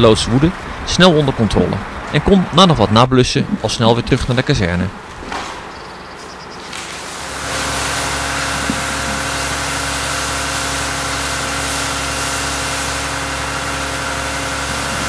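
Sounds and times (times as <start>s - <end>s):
fire truck engine running: 0.0s - 15.0s
water spraying from hose: 6.7s - 15.0s.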